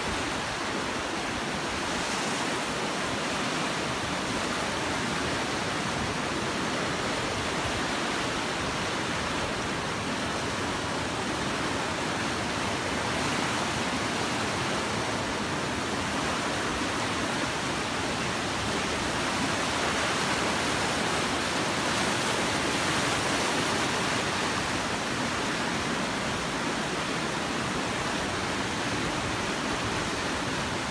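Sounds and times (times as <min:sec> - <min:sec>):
river rushing through rapids: 0:00.0 - 0:30.9.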